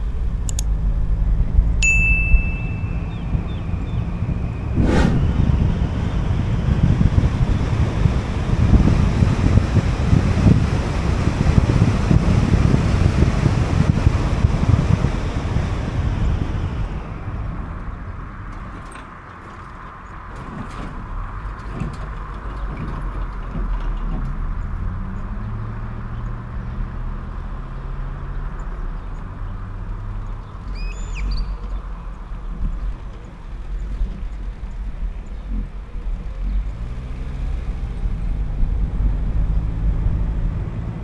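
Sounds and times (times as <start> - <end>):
low engine hum: 0.0 - 41.0
road and wind noise: 0.0 - 41.0
short high chirps: 1.8 - 3.6.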